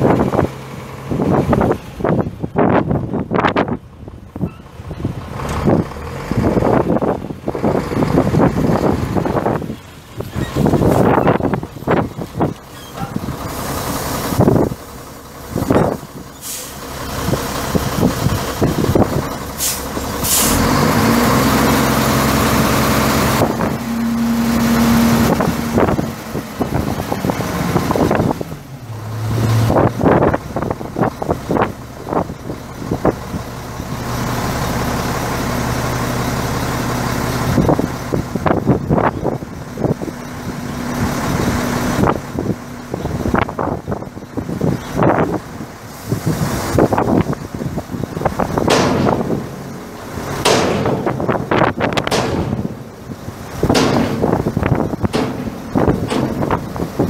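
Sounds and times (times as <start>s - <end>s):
diesel truck engine running: 0.0s - 57.0s
short air hisses: 16.4s - 16.9s, 19.6s - 20.7s
rattles and knocks: 48.1s - 57.0s.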